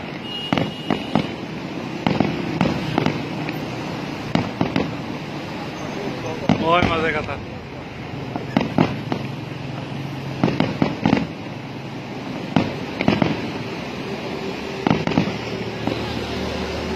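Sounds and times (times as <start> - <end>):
fireworks bursting: 0.0 - 16.9.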